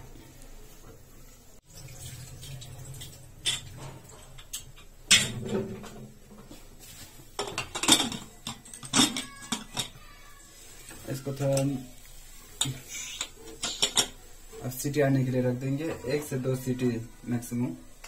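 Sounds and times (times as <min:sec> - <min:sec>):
metal lid clanking and scraping: 0:03.4 - 0:06.1, 0:12.6 - 0:14.2.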